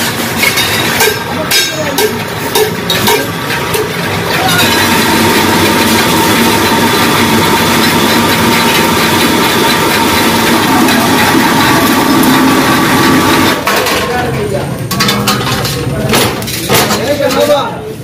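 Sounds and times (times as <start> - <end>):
machine rattling with high tone: 0.4 - 13.6.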